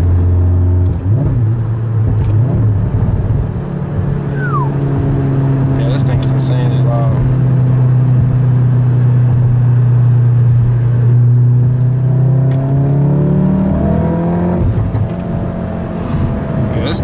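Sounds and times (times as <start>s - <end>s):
car engine droning and revving: 0.0s - 17.0s.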